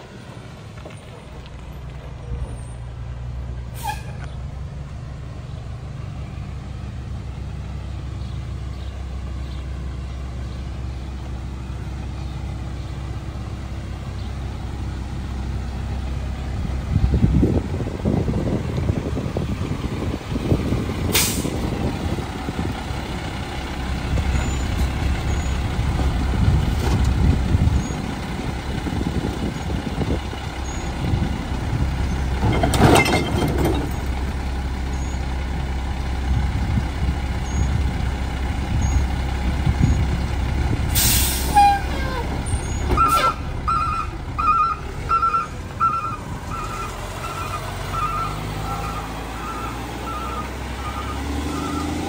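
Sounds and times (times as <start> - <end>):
air brakes hissing: 3.7 - 4.2, 21.1 - 21.6, 40.9 - 42.2
garbage truck idling: 5.8 - 52.0.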